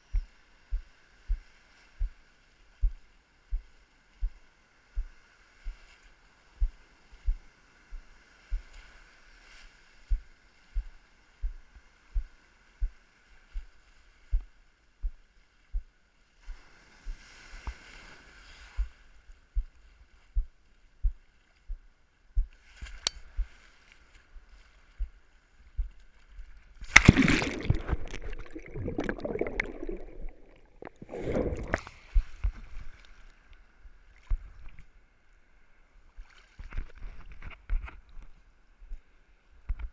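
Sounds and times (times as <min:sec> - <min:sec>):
waves rushing over camera: 0:26.8 - 0:33.4
water hissing: 0:26.9 - 0:31.9.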